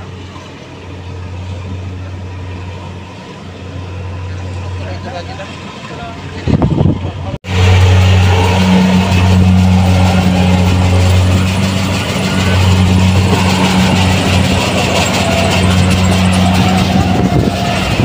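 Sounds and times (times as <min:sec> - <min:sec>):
loud engine drone: 0:00.0 - 0:18.0
mechanical rattle: 0:09.8 - 0:18.0.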